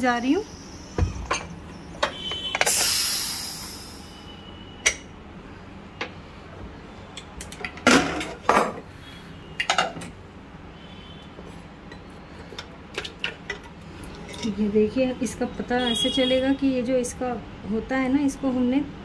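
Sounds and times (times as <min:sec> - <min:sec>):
steam hissing from pressure cooker: 0:02.5 - 0:04.5.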